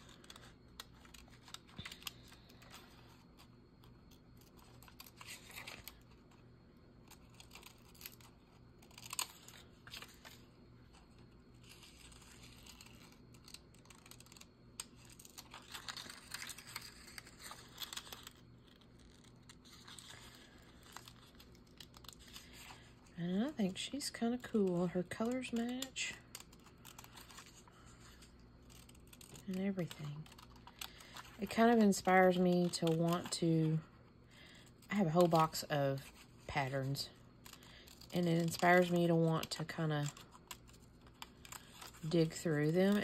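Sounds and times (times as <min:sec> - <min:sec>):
scissors snipping paper: 0:24.5 - 0:27.5, 0:28.7 - 0:33.4, 0:37.4 - 0:43.0
paper rustling: 0:24.6 - 0:33.4.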